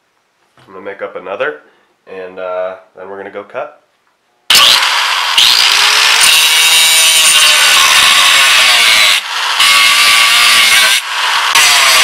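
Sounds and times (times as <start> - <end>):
angle grinder cutting steel: 4.5 - 12.0.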